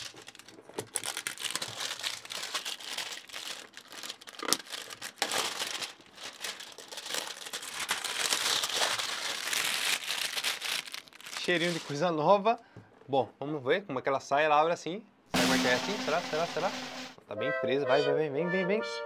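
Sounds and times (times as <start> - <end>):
packaging crinkling and crackling: 0.0 - 12.1.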